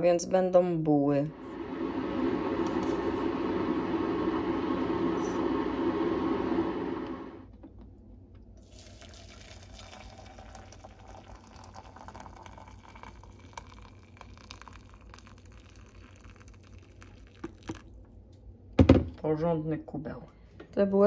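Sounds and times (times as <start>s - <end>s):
hot water pouring into a mug: 1.5s - 7.3s, 8.6s - 18.2s.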